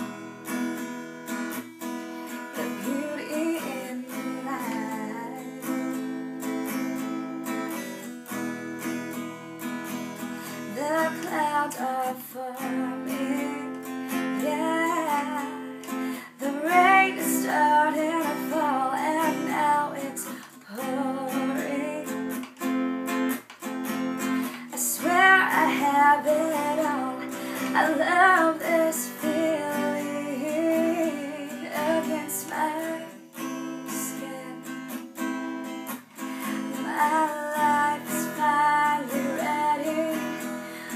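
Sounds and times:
strummed acoustic guitar: 0:00.0 - 0:40.9
woman singing: 0:02.3 - 0:07.0, 0:10.4 - 0:22.7, 0:24.2 - 0:35.4, 0:36.2 - 0:40.9.

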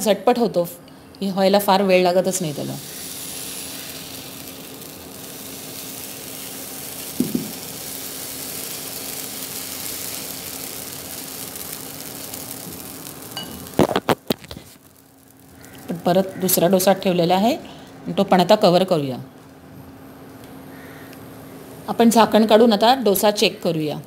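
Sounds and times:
batter sizzling on a hot pan: 0:02.1 - 0:17.2.

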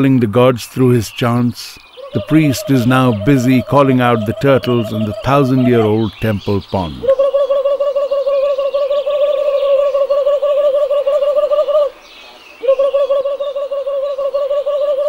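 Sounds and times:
birds chirping faintly: 0:00.0 - 0:15.0
person's warbling high-pitched call: 0:02.1 - 0:06.1, 0:06.8 - 0:11.9, 0:12.6 - 0:15.0.

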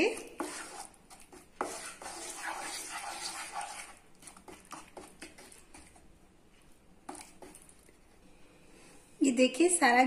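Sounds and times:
wooden spatula scraping a pan: 0:00.0 - 0:06.1.

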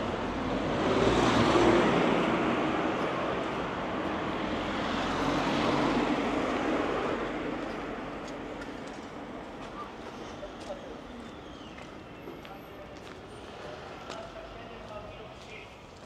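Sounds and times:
vehicles passing on street: 0:00.0 - 0:16.0.

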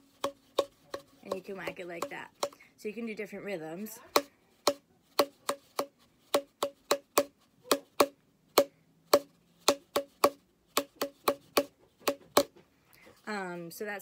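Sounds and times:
cardboard tube knocking on palm: 0:00.1 - 0:02.6, 0:04.1 - 0:12.6.

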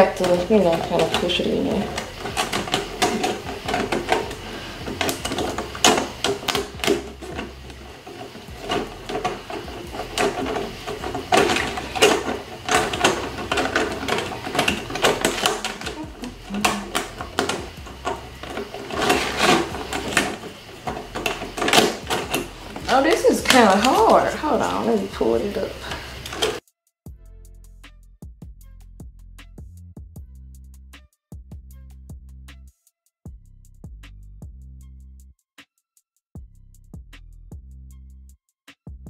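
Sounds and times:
plastic panels clicking and knocking: 0:00.0 - 0:24.9, 0:25.6 - 0:26.6.

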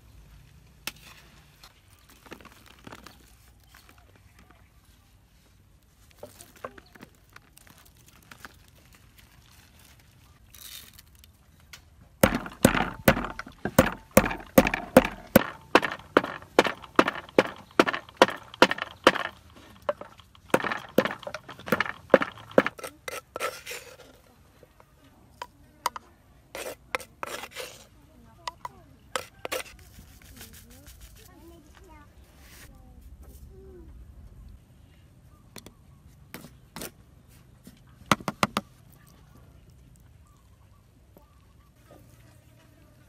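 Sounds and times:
pestle pounding in wooden mortar: 0:12.2 - 0:23.6, 0:28.5 - 0:29.7.

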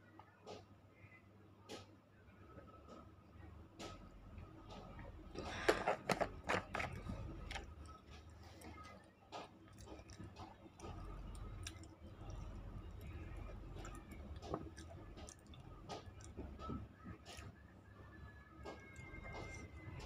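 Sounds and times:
crunching and chewing: 0:04.7 - 0:17.6, 0:18.6 - 0:20.0.

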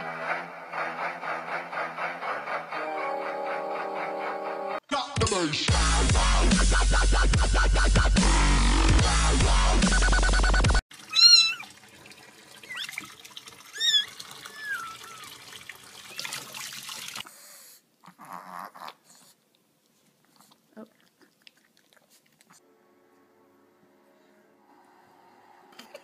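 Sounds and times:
dubstep music: 0:04.9 - 0:10.8
kitten meowing: 0:11.1 - 0:11.7, 0:13.8 - 0:15.3.

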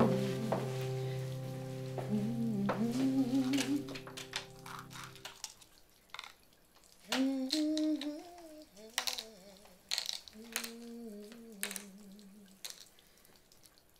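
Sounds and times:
woman humming: 0:02.0 - 0:04.1, 0:07.1 - 0:09.8, 0:10.4 - 0:12.6.

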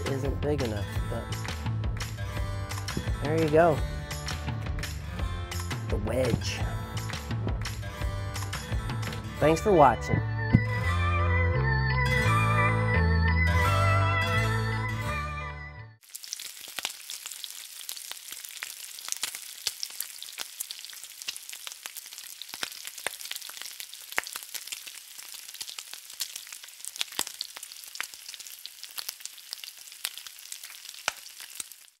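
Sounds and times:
bacon sizzling and popping: 0:16.0 - 0:32.0.

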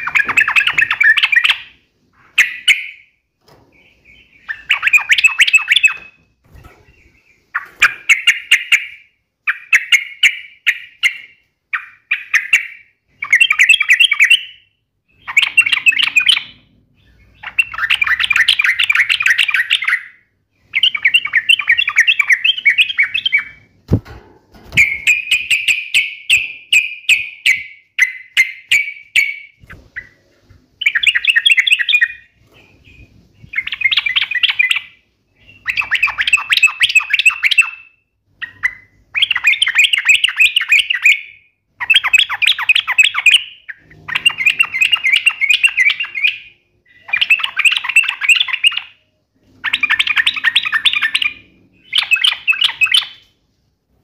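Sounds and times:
bird singing chattering bursts: 0:00.0 - 0:01.7, 0:03.7 - 0:14.5, 0:30.8 - 0:49.0.

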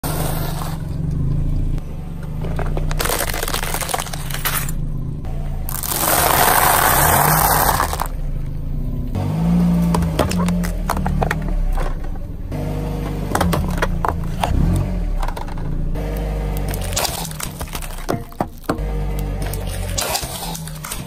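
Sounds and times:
car engine idling: 0:00.0 - 0:21.0
car tyre crushing things on asphalt: 0:00.0 - 0:21.0
dry pasta crunching: 0:02.9 - 0:04.4, 0:05.7 - 0:08.1, 0:16.6 - 0:21.0.

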